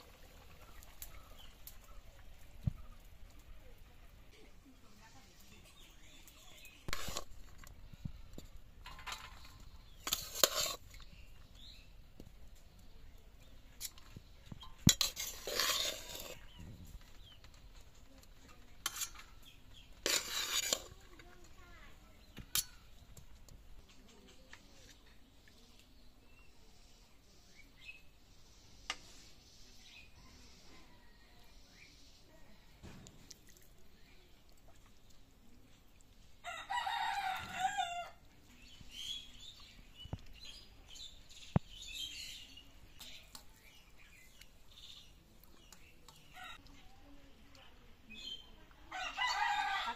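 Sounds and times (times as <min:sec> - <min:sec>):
metal spoon scraping pot: 0:06.9 - 0:07.8, 0:08.8 - 0:11.3, 0:13.7 - 0:21.6, 0:22.3 - 0:23.0.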